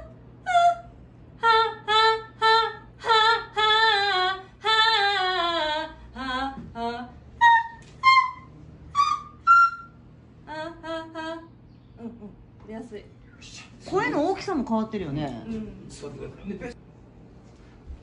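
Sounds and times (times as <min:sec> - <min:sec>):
woman singing unaccompanied: 0:00.0 - 0:08.4, 0:10.4 - 0:12.4.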